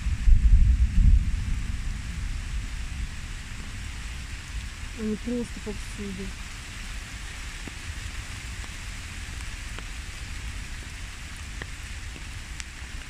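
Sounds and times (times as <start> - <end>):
low rumble: 0.0 - 6.2
rain on tree foliage: 0.0 - 13.0.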